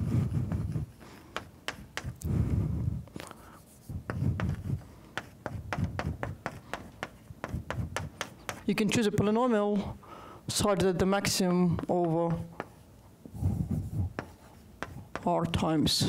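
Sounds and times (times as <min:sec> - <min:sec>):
chalk tapping and scratching on blackboard: 0:00.5 - 0:02.3, 0:03.4 - 0:09.0, 0:10.7 - 0:12.8, 0:13.4 - 0:15.9.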